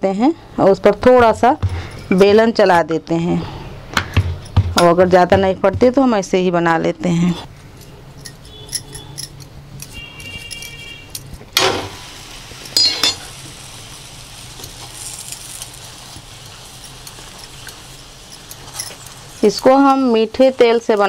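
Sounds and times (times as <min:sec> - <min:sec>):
sharp metallic clinks: 0:08.2 - 0:10.8, 0:12.8 - 0:13.3
steel spoon scraping on pan: 0:08.2 - 0:11.2
flatbread sizzling faintly: 0:11.6 - 0:21.0.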